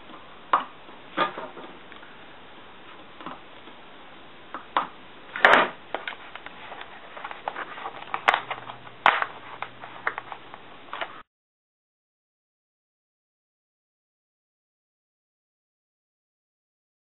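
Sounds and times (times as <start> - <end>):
plastic clicks and crackles: 6.0 - 11.1.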